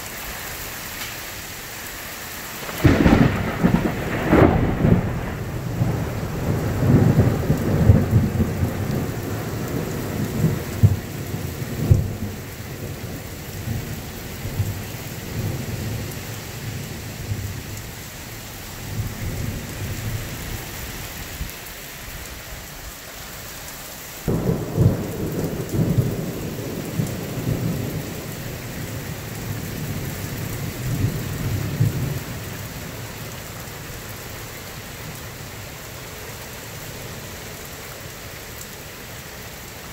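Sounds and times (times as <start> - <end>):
steady rain: 0.0 - 39.9
thunder rumbling: 2.6 - 17.8, 24.2 - 33.1.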